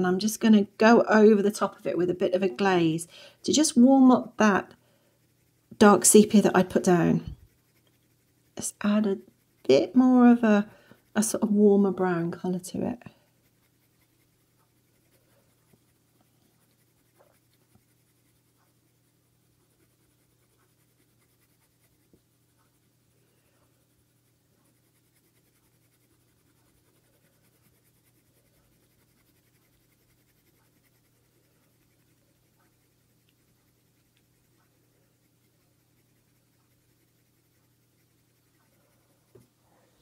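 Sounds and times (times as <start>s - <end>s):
pencil scratching on paper: 0.0s - 39.6s
room hum: 0.0s - 40.0s
small ticks: 7.3s - 9.9s, 13.1s - 39.5s.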